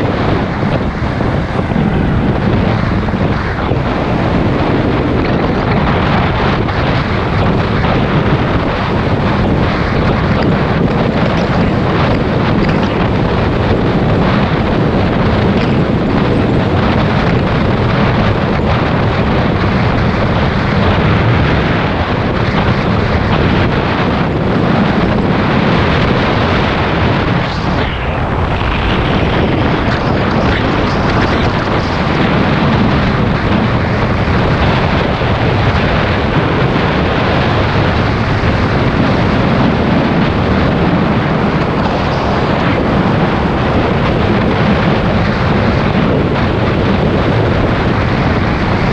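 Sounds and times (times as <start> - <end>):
motorbike engine and tyre noise: 0.0 - 48.9
wind rushing over microphone: 0.0 - 48.9.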